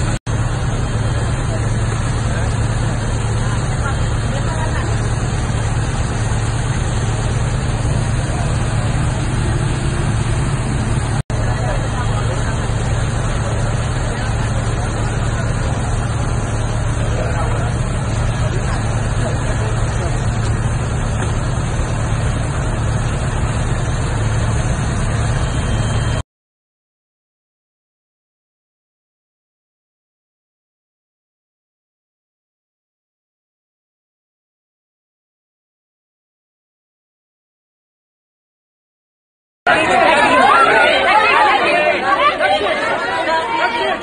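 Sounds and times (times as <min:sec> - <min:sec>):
vehicle engine idling: 0:00.0 - 0:26.2.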